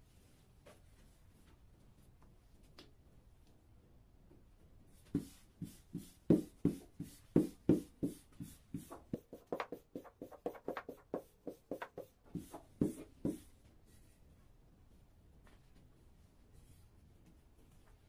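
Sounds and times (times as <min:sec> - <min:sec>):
rolling pin knocking on dough: 0:05.2 - 0:13.4.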